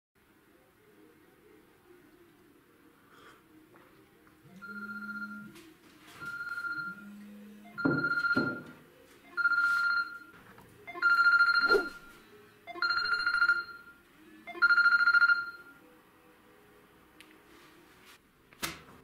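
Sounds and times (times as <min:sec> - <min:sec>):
buzzy electronic phone beep: 0:04.5 - 0:05.5, 0:06.2 - 0:10.3, 0:10.9 - 0:15.8.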